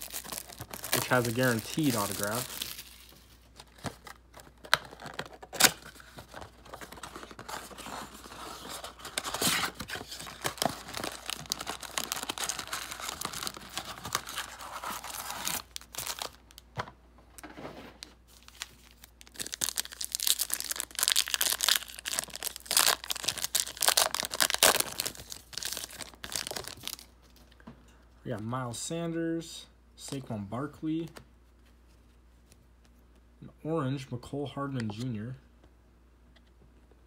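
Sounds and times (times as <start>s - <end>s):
cardboard and wrappers tearing: 0.0s - 3.1s, 4.8s - 16.4s, 18.4s - 27.1s.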